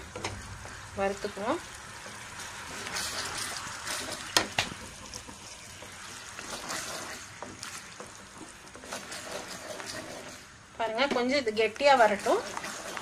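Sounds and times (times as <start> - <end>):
thick mixture bubbling: 0.0 - 10.8, 11.8 - 13.0
soft sizzle: 0.0 - 13.0
spatula scraping a pan: 2.1 - 10.5, 12.0 - 13.0.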